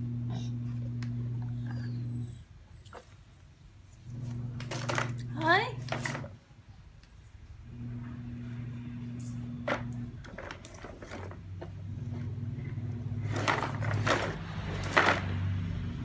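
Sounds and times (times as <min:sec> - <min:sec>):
steady low hum: 0:00.0 - 0:02.7, 0:07.5 - 0:16.0
plastic clicks and clatters: 0:09.7 - 0:11.7.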